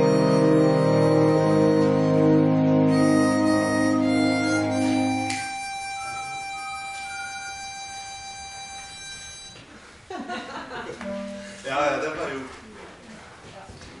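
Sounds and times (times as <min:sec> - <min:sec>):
brass band chord: 0:00.0 - 0:05.4
harmonica notes: 0:00.0 - 0:10.0, 0:11.0 - 0:11.8.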